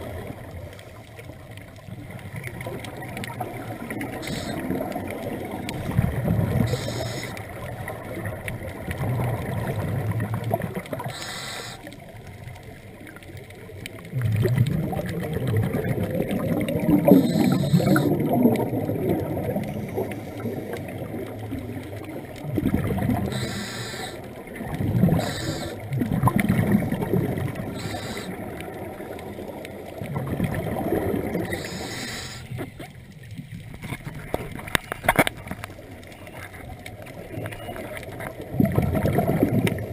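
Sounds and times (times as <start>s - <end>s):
exhaled air bubbling: 0.0s - 39.9s
regulator inhalation hiss: 4.1s - 4.7s, 6.6s - 7.4s, 11.1s - 11.9s, 17.1s - 18.1s, 23.3s - 24.2s, 25.2s - 25.8s, 27.7s - 28.4s, 31.5s - 32.5s.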